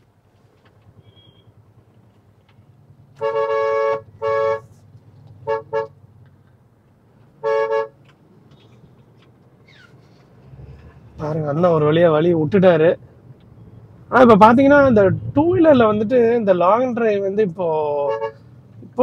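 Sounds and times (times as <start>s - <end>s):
engine and road hum: 0.0s - 19.0s
car horn honking: 3.1s - 4.8s, 5.4s - 6.0s, 7.4s - 8.0s, 18.0s - 18.5s.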